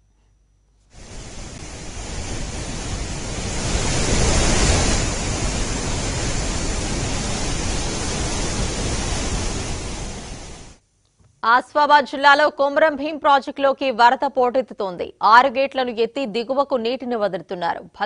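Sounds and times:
rushing floodwater: 0:01.0 - 0:10.8.

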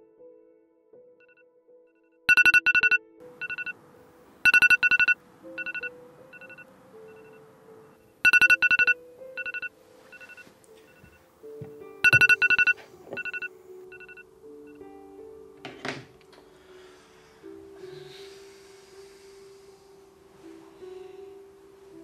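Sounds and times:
soft background music: 0:00.0 - 0:22.0
electronic phone ringtone chime: 0:02.3 - 0:03.8, 0:04.4 - 0:07.4, 0:08.2 - 0:11.2, 0:12.0 - 0:14.8.

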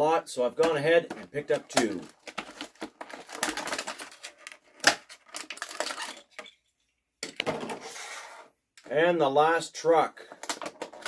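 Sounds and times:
plastic packaging crackling: 0:01.5 - 0:06.6.

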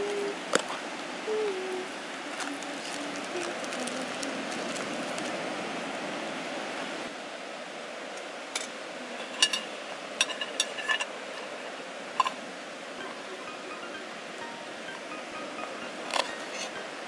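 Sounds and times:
surf on beach: 0:03.1 - 0:07.1.

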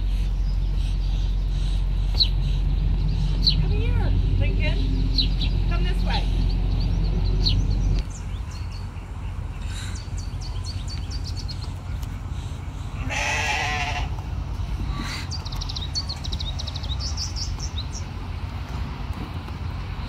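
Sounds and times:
steady low rumble: 0:00.0 - 0:20.0
sheep or goat bleating: 0:13.0 - 0:14.1.

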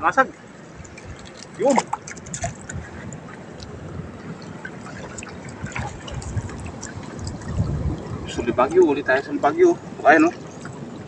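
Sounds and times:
water trickling and dripping: 0:00.0 - 0:11.0.

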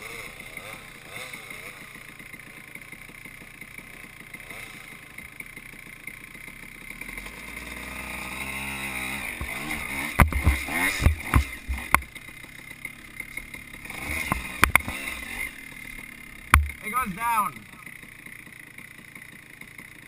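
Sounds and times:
dirt bike engine revving: 0:00.0 - 0:20.0
sharp knocks: 0:09.3 - 0:12.2, 0:14.1 - 0:15.2, 0:16.5 - 0:16.8.

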